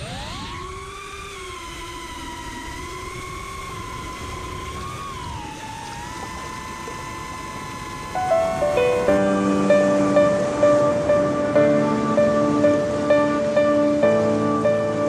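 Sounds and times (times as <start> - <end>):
drone motors whining: 0.0 - 15.0
low rumble of air noise: 8.1 - 15.0.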